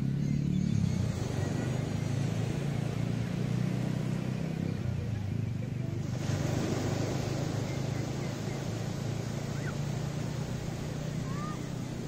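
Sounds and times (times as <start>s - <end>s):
low motor hum: 0.0s - 12.0s
surf washing: 1.0s - 12.0s.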